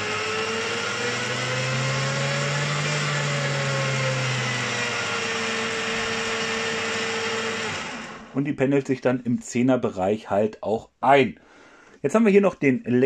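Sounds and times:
drill press motor whine: 0:00.0 - 0:08.4.

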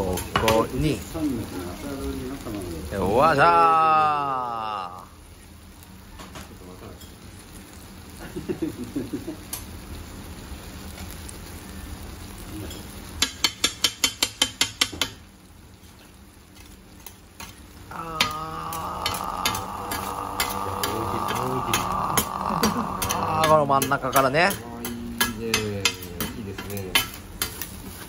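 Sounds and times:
food sizzling: 0:00.0 - 0:28.0
metal spatula scraping on griddle: 0:19.0 - 0:28.0.

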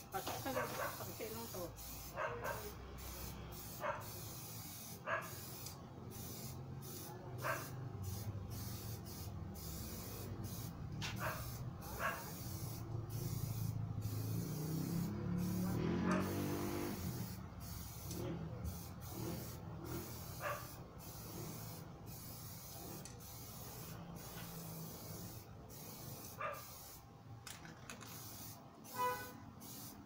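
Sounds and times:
spray paint hissing: 0:00.0 - 0:30.0
dog barking: 0:00.5 - 0:01.1, 0:02.1 - 0:02.8, 0:03.7 - 0:04.2, 0:05.0 - 0:05.5, 0:07.4 - 0:07.9, 0:11.2 - 0:12.4, 0:15.9 - 0:16.4, 0:20.3 - 0:20.8, 0:26.2 - 0:26.8.

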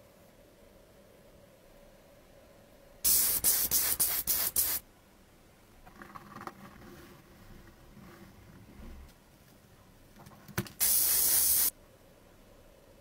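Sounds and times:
hissing spray bursts: 0:03.0 - 0:04.8, 0:10.8 - 0:11.7.

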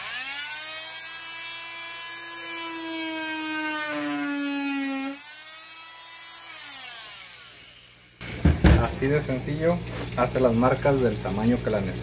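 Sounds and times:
power tool cutting plastic pipe: 0:00.0 - 0:08.8.

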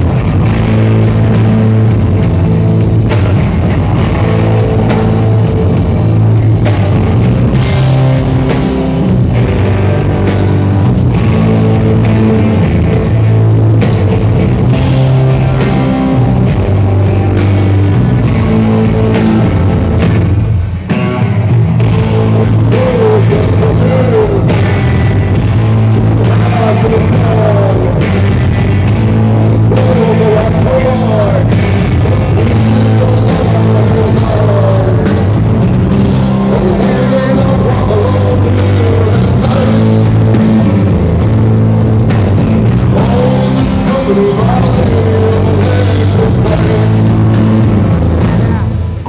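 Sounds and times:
bass guitar: 0:00.0 - 0:49.0
drum kit: 0:00.0 - 0:49.0
electric guitar: 0:00.0 - 0:49.0
man singing lead vocal: 0:22.2 - 0:28.6, 0:29.4 - 0:41.2, 0:42.6 - 0:49.0.

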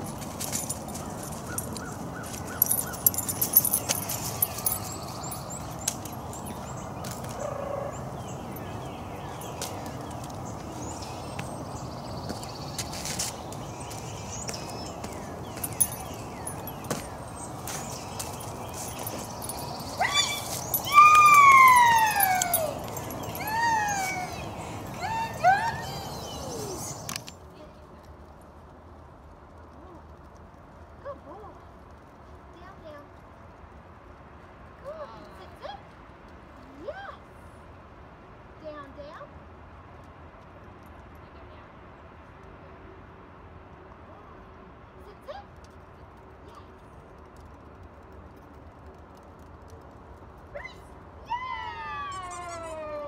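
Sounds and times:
footsteps on dry leaves: 0:00.0 - 0:07.5, 0:09.5 - 0:27.1
small birds chirping: 0:00.0 - 0:28.1
dog whining: 0:19.5 - 0:27.1.

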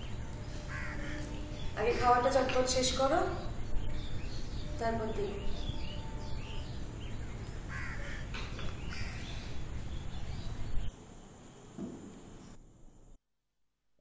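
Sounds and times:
quiet hiss: 0:00.0 - 0:13.2
steady background hum: 0:00.0 - 0:13.2
crows cawing: 0:00.6 - 0:01.5, 0:07.6 - 0:09.6.

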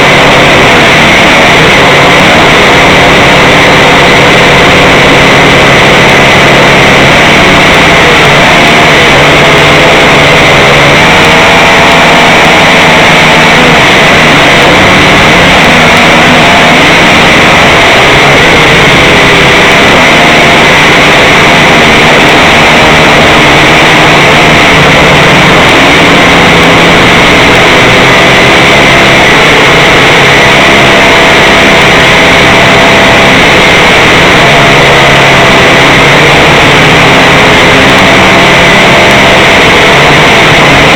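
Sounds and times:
drone motors and propellers whining: 0:00.0 - 0:40.9.

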